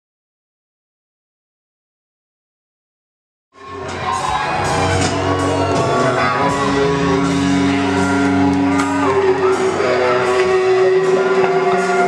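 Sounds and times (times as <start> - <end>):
music with guitar and beat: 3.6 - 12.0.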